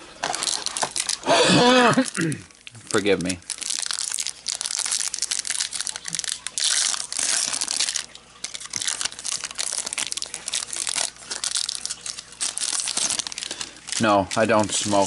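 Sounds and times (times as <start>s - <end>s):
foil wrapper crinkling: 0.0s - 15.0s.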